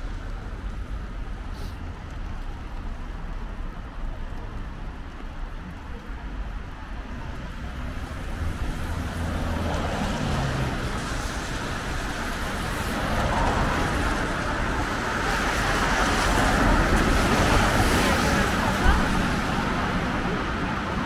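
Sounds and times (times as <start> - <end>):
street traffic: 0.0 - 21.0
tyres hissing on wet asphalt: 0.0 - 21.0
car passing: 7.2 - 21.0.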